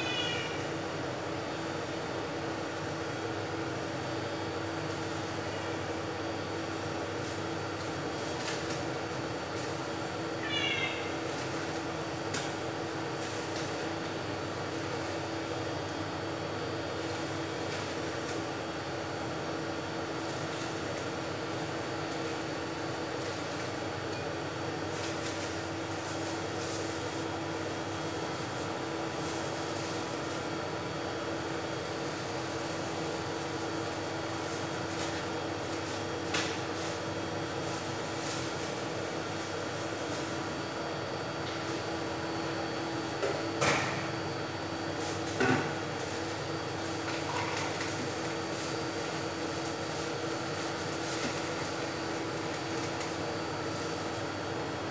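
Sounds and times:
steady mechanical hum: 0:00.0 - 0:54.9
plastic bag rustling: 0:31.4 - 0:40.6, 0:44.8 - 0:54.3.

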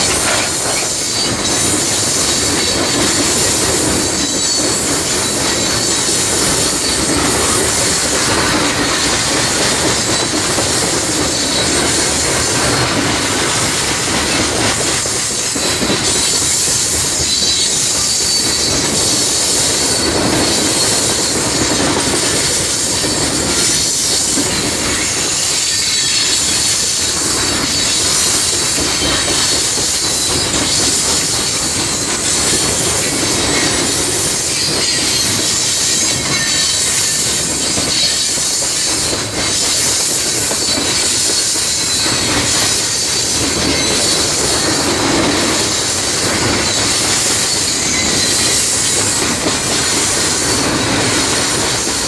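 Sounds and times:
train wheels rumbling on rails: 0:00.0 - 0:52.0
high-pitched wheel squeal: 0:33.0 - 0:39.9.

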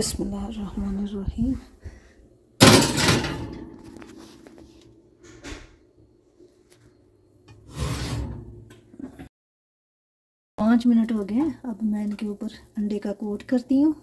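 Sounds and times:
glass dish clanging on oven rack: 0:02.6 - 0:03.8
metal oven rack rattling: 0:02.6 - 0:03.8.

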